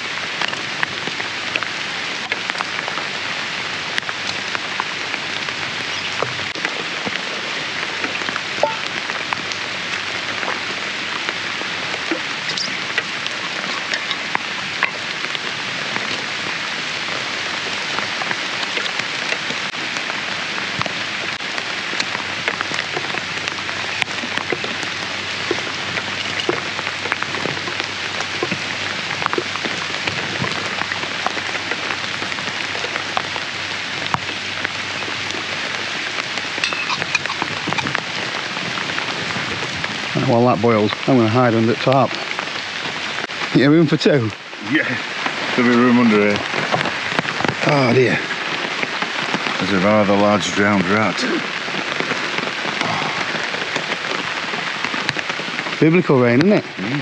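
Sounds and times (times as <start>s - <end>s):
heavy rain falling: 0.0s - 57.0s
raindrops ticking on surfaces: 0.0s - 57.0s.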